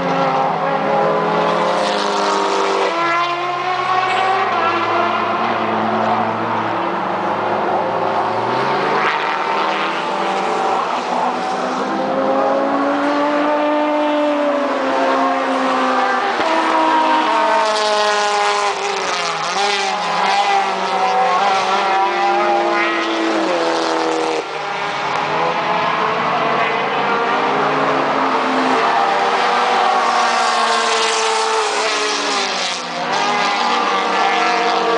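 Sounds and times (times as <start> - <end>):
race cars passing: 0.0 - 34.9.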